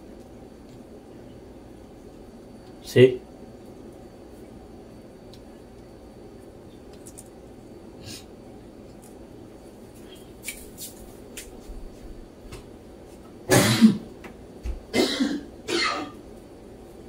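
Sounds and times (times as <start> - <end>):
person coughing: 13.5 - 14.1, 14.9 - 16.2.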